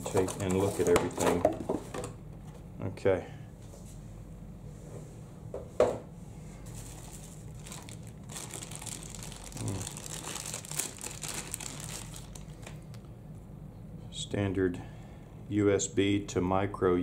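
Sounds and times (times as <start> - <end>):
plastic bag crinkling: 6.8 - 13.1.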